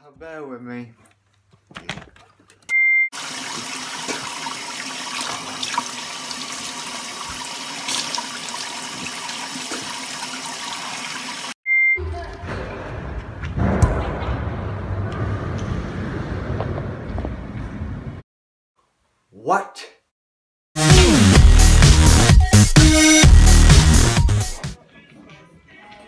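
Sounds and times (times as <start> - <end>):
running water rushing: 3.2 - 11.6.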